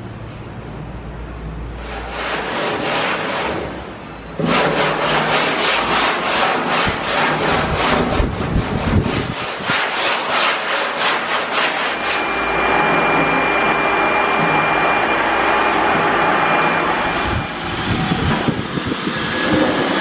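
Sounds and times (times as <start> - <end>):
sanding block rubbing wood: 1.8 - 3.8, 4.4 - 12.4
vacuum cleaner whining: 11.2 - 20.0.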